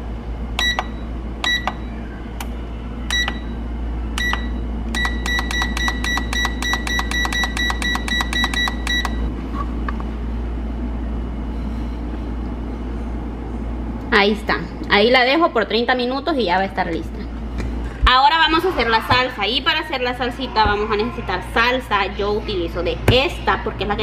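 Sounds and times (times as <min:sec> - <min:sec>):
low hum: 0:00.0 - 0:14.9
control panel beeping: 0:00.6 - 0:01.8, 0:03.1 - 0:03.5, 0:04.2 - 0:09.2.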